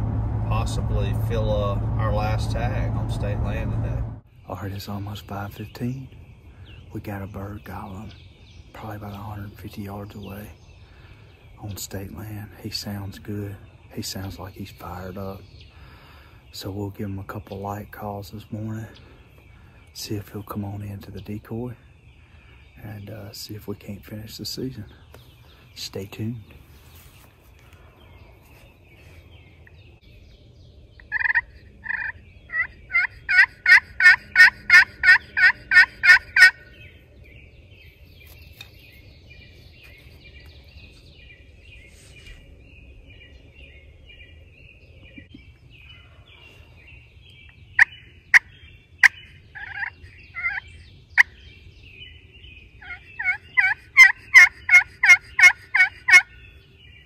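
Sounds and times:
turkey call clucks: 0:31.0 - 0:36.7, 0:47.8 - 0:50.6, 0:52.8 - 0:56.4
turkey call hen yelps: 0:31.1 - 0:36.6, 0:47.8 - 0:50.6, 0:52.8 - 0:56.3.

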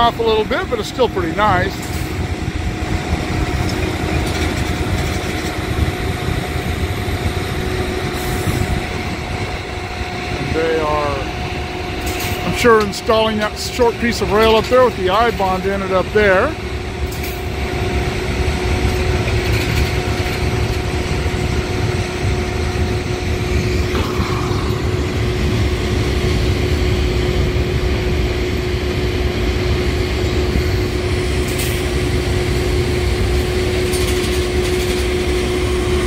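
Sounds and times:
engine humming steadily: 0:00.0 - 0:36.0
wind on microphone: 0:01.4 - 0:10.6.

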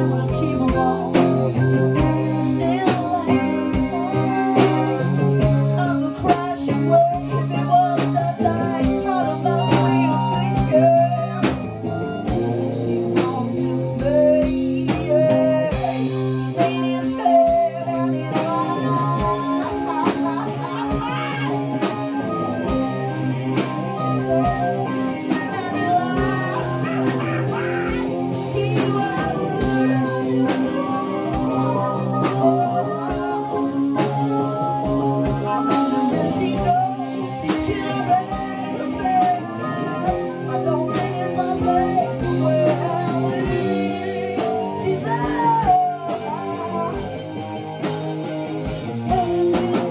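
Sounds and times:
drum kit beat: 0:00.0 - 0:49.9
guitar playing: 0:00.0 - 0:49.9
harmonica playing: 0:17.1 - 0:44.4.

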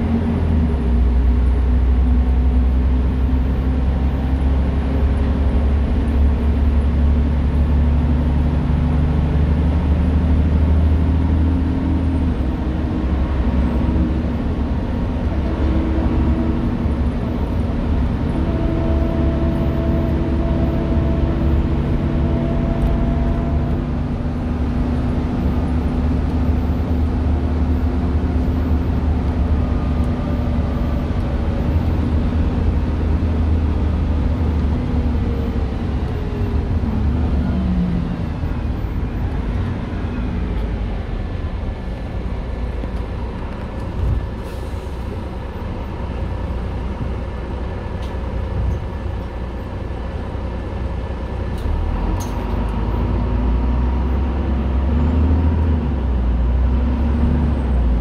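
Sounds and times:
bus engine drone from inside: 0:00.0 - 0:58.0.

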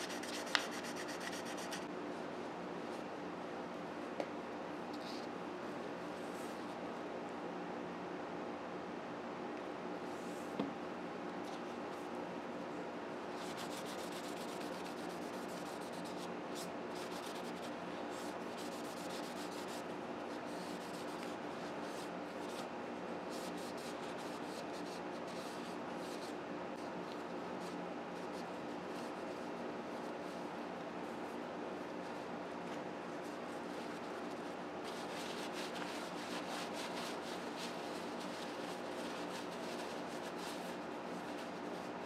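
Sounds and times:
paper towel wiping knife handle: 0:00.0 - 0:01.9, 0:33.2 - 0:42.0
steady background hum: 0:00.0 - 0:42.0.

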